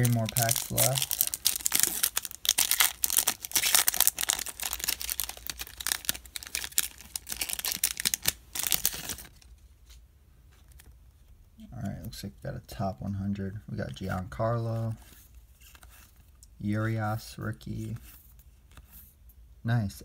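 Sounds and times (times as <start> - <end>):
foil wrapper crinkling: 0.0 - 9.5.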